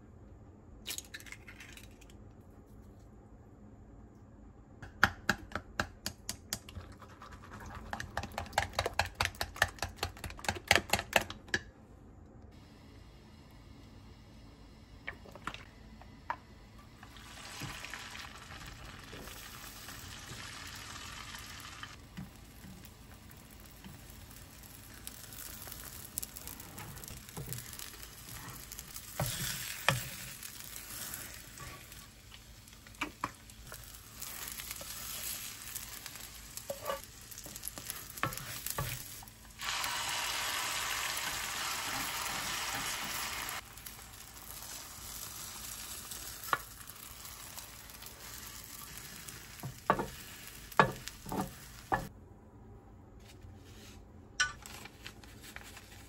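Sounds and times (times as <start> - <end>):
food sizzling in a pan: 16.9 - 52.1.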